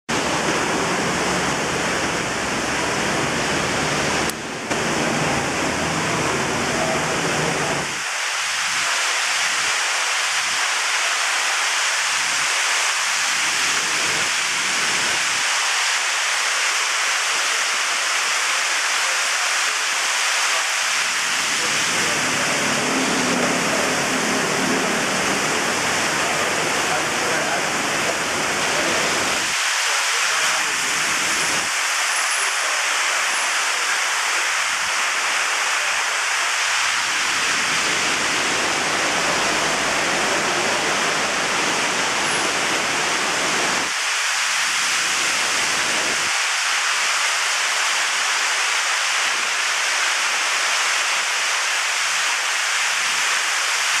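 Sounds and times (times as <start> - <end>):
loud rushing noise: 0.1 - 17.2, 19.7 - 50.2.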